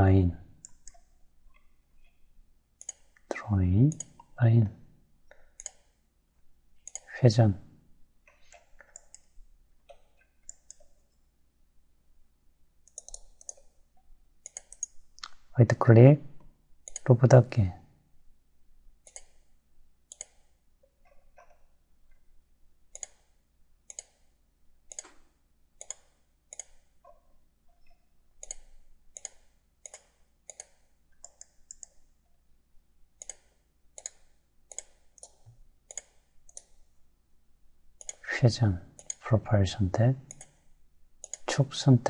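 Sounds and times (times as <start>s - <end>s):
computer mouse clicking: 0.6s - 2.2s, 2.8s - 4.4s, 5.4s - 6.0s, 6.8s - 7.1s, 8.3s - 11.2s, 12.8s - 13.8s, 14.4s - 15.4s, 16.8s - 17.1s, 19.0s - 19.5s, 20.1s - 21.7s, 22.9s - 24.3s, 24.9s - 32.1s, 33.2s - 36.9s, 38.0s - 38.2s, 39.0s - 39.2s, 40.2s - 41.6s.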